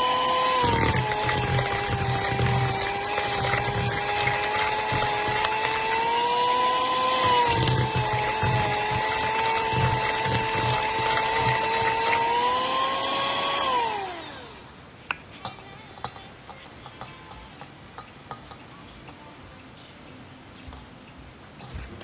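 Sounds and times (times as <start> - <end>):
electric hand mixer whining: 0.0 - 14.7.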